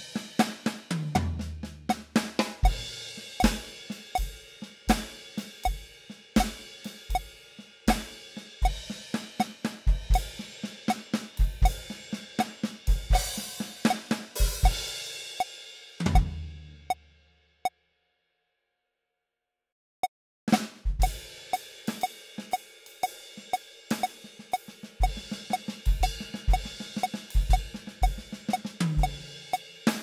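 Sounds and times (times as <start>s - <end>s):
drum rolls on snare and toms: 0.0s - 17.0s, 20.5s - 30.0s
bass drum: 0.9s - 7.3s, 9.9s - 12.0s, 12.9s - 13.5s, 14.4s - 14.9s, 16.0s - 17.0s, 20.8s - 21.2s, 25.0s - 29.3s
metronome clicking: 3.4s - 4.3s, 6.4s - 7.3s, 9.4s - 10.3s, 13.8s - 14.0s, 21.0s - 23.2s, 24.0s - 29.6s.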